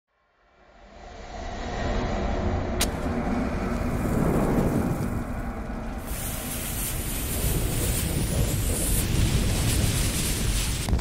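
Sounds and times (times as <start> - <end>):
low rumble: 0.3 - 11.0
burning fuse hissing: 3.7 - 11.0.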